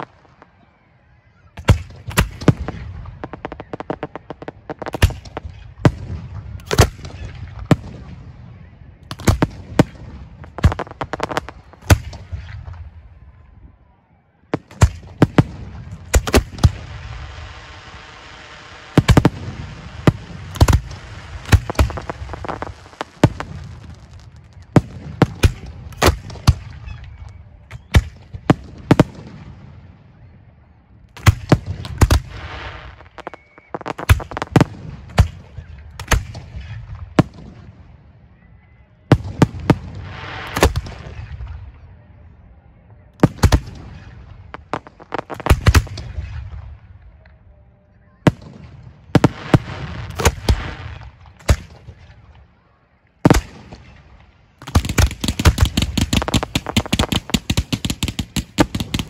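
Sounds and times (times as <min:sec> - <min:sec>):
hissing crackle: 0:16.1 - 0:27.4, 0:31.2 - 0:36.2, 0:44.5 - 0:46.1, 0:54.6 - 0:59.0.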